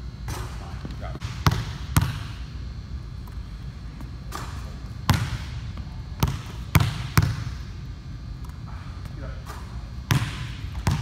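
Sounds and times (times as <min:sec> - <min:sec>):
basketball bouncing on hardwood floor: 0:01.2 - 0:02.3, 0:04.3 - 0:07.6, 0:09.5 - 0:11.0.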